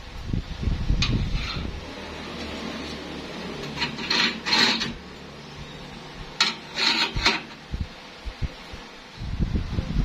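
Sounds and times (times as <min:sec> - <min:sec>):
steel tubing scraping on metal: 0:01.0 - 0:07.7.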